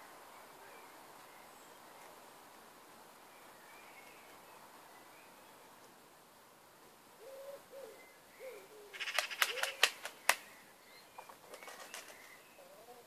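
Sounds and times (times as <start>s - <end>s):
rooster flapping wings: 9.0s - 10.4s, 11.5s - 12.3s.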